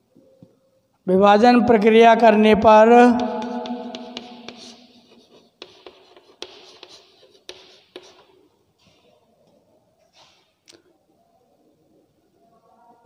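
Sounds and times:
chalk tapping on board: 0:02.9 - 0:08.4
chalk scratching on chalkboard: 0:03.0 - 0:08.5.

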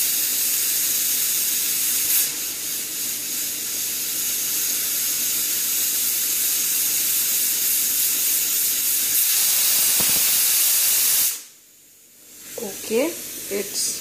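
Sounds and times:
pressure cooker whistling: 0:04.2 - 0:11.5.

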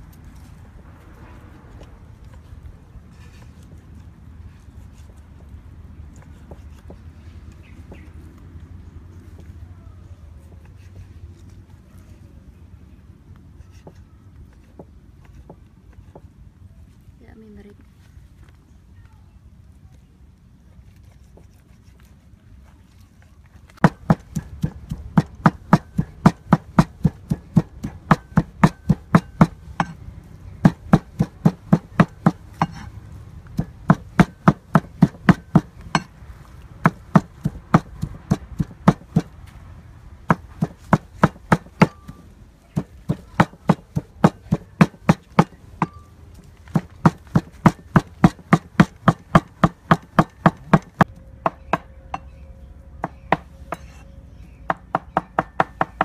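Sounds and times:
cleaver chopping meat on wood: 0:23.8 - 0:30.0, 0:30.6 - 0:32.9, 0:33.5 - 0:36.1, 0:36.8 - 0:39.4, 0:40.3 - 0:46.0, 0:46.7 - 0:51.9, 0:54.7 - 0:56.0.

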